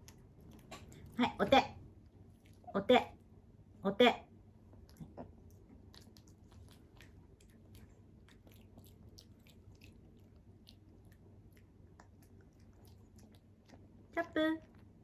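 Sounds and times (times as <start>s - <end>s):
puppy chewing dry kibble: 4.8s - 15.0s.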